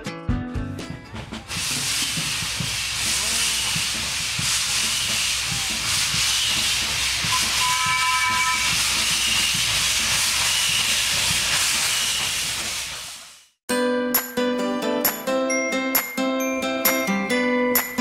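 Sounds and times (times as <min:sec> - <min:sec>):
steam locomotive hissing: 0:01.1 - 0:13.6
short train whistle: 0:05.0 - 0:09.7.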